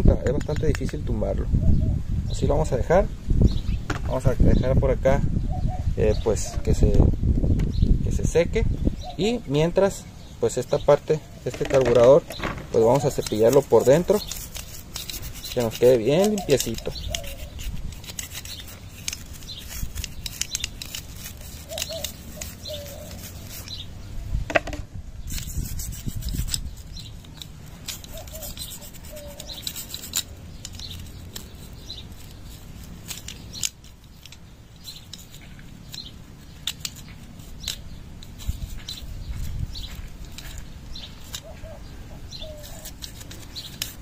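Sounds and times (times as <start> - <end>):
toothbrush scrubbing metal: 12.8 - 23.8, 25.3 - 41.5, 42.3 - 44.0.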